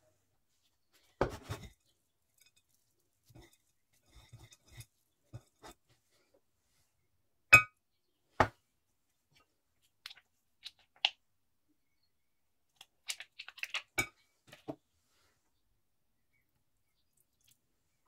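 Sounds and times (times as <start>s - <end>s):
spoon scraping through nuts: 1.4s - 5.8s.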